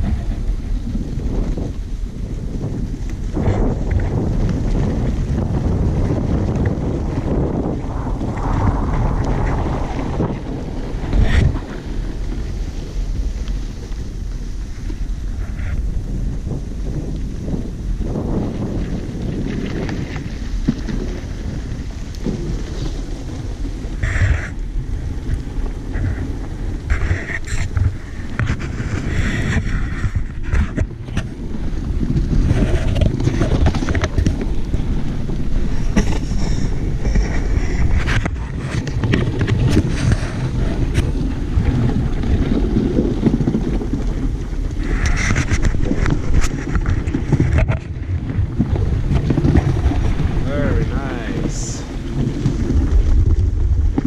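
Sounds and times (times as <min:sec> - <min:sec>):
runners scraping: 0:00.0 - 0:54.0
wind buffeting microphone: 0:00.0 - 0:54.0
sled runners hissing on snow: 0:34.9 - 0:43.4.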